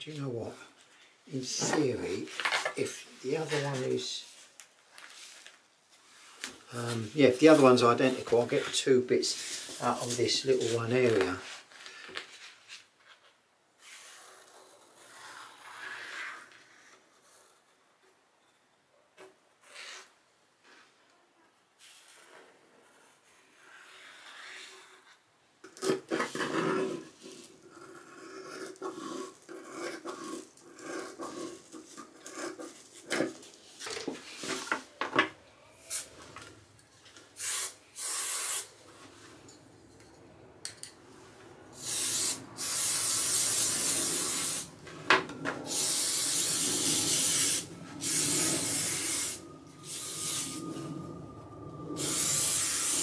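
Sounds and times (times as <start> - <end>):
aerosol spray hissing: 35.9 - 36.2, 37.4 - 38.8, 41.8 - 44.7, 45.7 - 51.0, 51.9 - 53.0.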